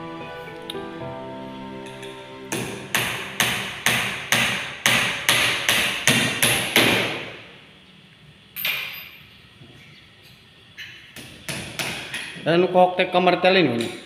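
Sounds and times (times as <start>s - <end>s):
hammer knocking on wood: 2.6s - 7.2s.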